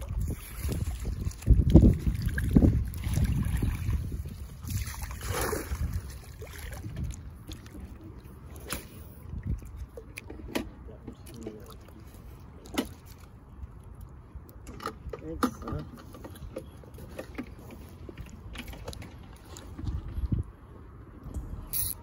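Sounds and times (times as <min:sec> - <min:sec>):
wind rumble on microphone: 0:00.0 - 0:10.2, 0:17.9 - 0:22.0.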